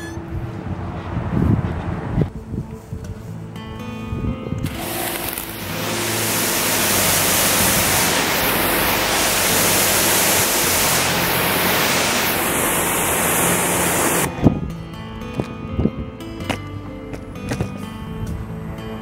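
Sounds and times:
pressure washer spraying asphalt: 0:04.6 - 0:14.3.

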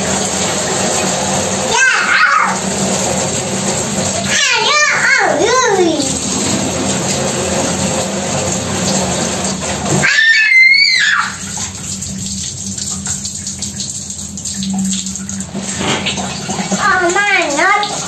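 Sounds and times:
water splashing on tiled floor: 0:00.0 - 0:18.0
child squealing: 0:01.7 - 0:02.6, 0:10.0 - 0:11.5.

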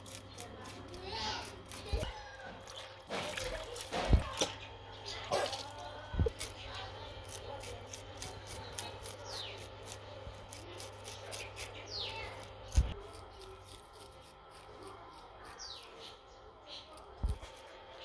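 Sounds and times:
birds chirping: 0:02.0 - 0:13.0, 0:15.4 - 0:18.0.

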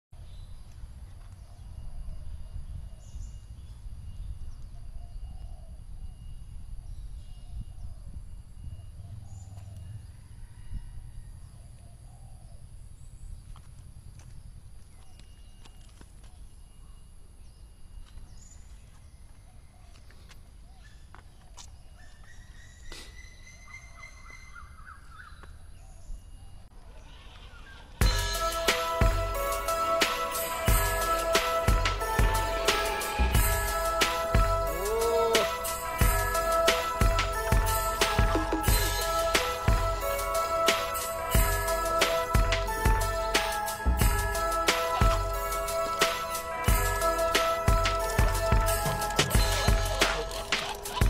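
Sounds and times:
faint bird chirps: 0:14.9 - 0:28.0
birds calling: 0:19.6 - 0:51.0
high-pitched drone: 0:28.0 - 0:51.0.

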